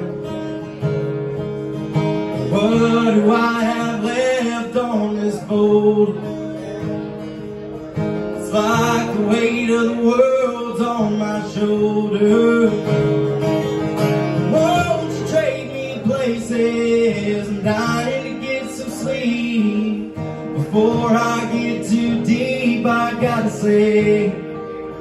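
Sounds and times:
acoustic guitar strumming: 0:00.0 - 0:25.0
man singing into microphone: 0:02.4 - 0:06.4, 0:08.4 - 0:13.0, 0:14.4 - 0:24.7.

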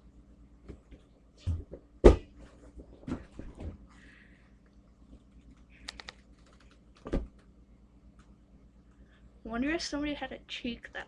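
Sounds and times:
laptop keyboard clicks: 0:05.8 - 0:07.4.

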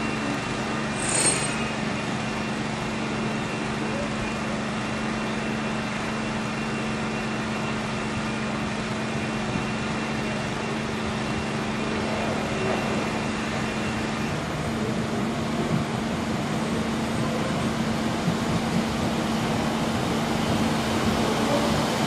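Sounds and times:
train rushing noise: 0:00.2 - 0:03.0, 0:08.6 - 0:22.0.

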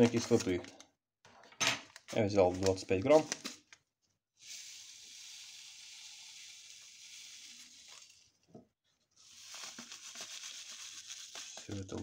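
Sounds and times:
paper rustle: 0:09.2 - 0:12.0.

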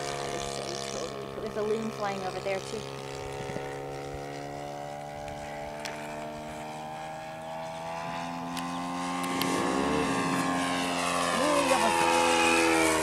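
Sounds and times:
model airplane engine droning: 0:00.0 - 0:13.0
second engine tone: 0:07.1 - 0:13.0.

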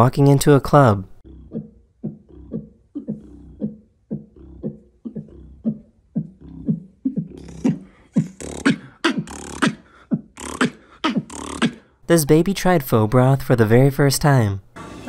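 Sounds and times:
beatboxing muffled kick beat: 0:01.2 - 0:11.8
beatboxed hi-hat and snare: 0:10.4 - 0:11.8.

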